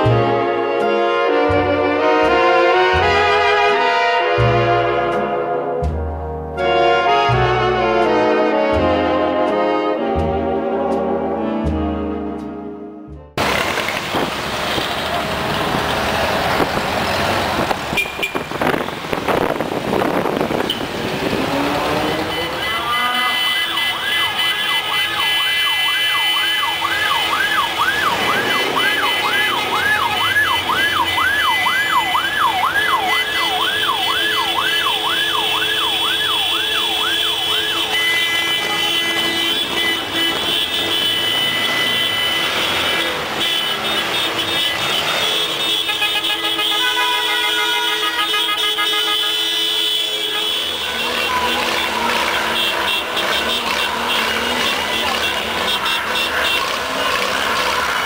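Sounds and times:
street traffic: 0.0 - 58.0
car horn blasts: 17.9 - 19.0, 21.9 - 31.4, 33.0 - 58.0
siren warbling: 25.7 - 37.6.

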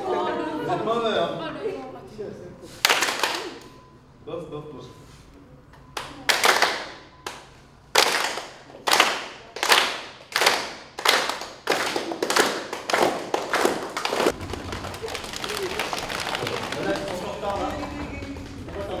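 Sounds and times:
group clapping: 2.8 - 3.9, 5.8 - 19.0.

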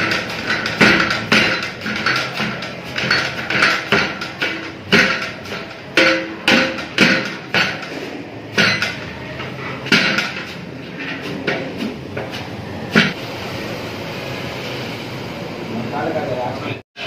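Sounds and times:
iron paddle clanking on pot: 0.0 - 13.2.

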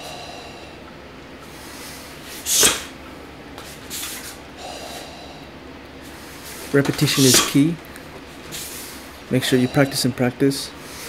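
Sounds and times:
arm whooshes: 2.3 - 3.0, 7.1 - 7.6.

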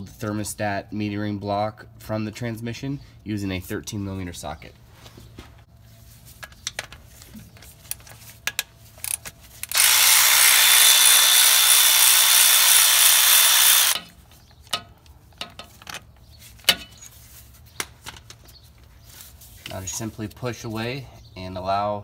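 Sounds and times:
power ratchet whining: 9.0 - 14.1.

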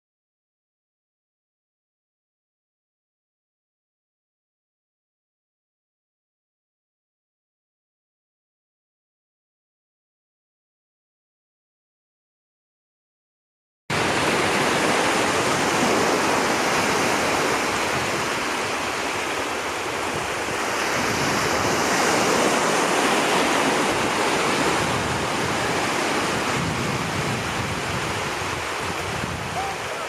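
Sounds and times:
small waves breaking: 13.9 - 30.0.

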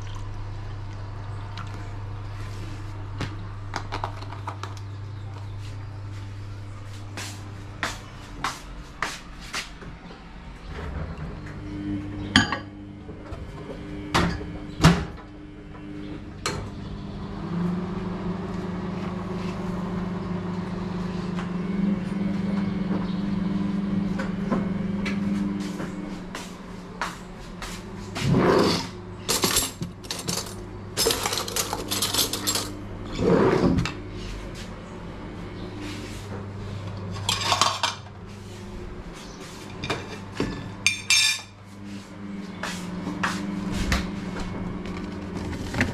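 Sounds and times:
microwave oven humming: 0.0 - 45.9
dishes and cutlery clinking: 39.7 - 41.6.

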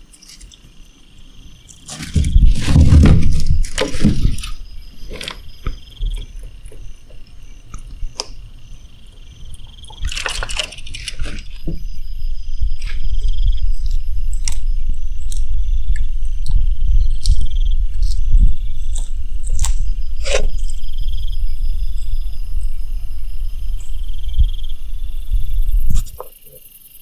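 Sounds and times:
insect chirping: 0.0 - 27.0
steady low rumble: 0.0 - 27.0
lizard crunching prey: 1.5 - 11.8, 12.7 - 20.9.

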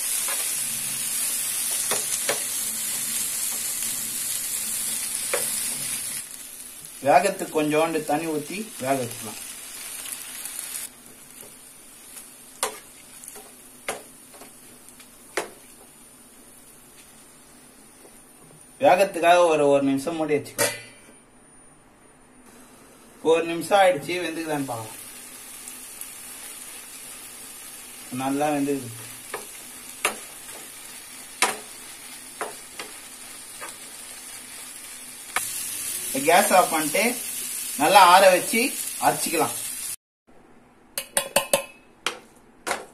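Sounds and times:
frying pan sizzling: 0.0 - 18.4, 22.5 - 40.0
spatula tapping and scraping: 12.6 - 15.9
metal spatula knocking on frying pan: 41.0 - 42.9.

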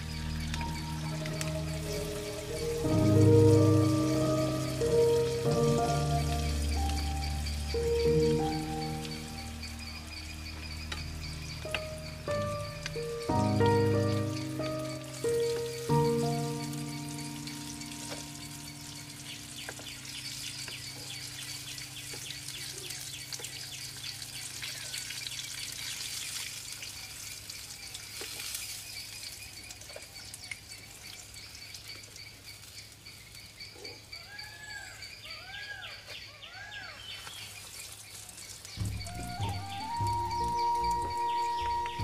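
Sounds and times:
bird chirping: 0.0 - 25.7, 28.9 - 42.0
birds calling: 0.0 - 25.8, 28.9 - 42.0
oil sizzling in a wok: 0.0 - 33.5.

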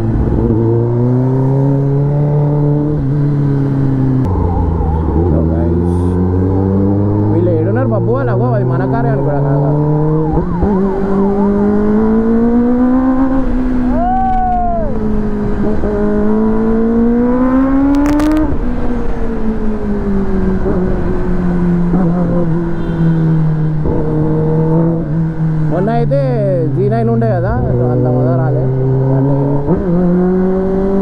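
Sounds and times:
motorcycle engine revving: 0.0 - 14.0, 15.0 - 26.6, 27.5 - 31.0
brief crackle: 17.9 - 18.4.

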